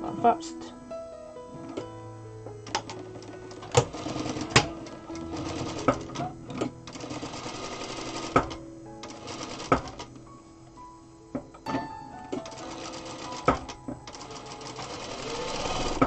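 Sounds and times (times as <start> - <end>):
background music: 0.0 - 16.0
sewing machine stitching: 2.7 - 10.1, 12.4 - 16.0.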